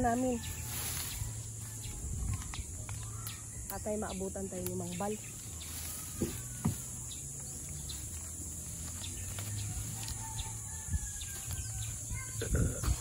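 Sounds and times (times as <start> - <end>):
faint bird chirps: 0.0 - 8.3.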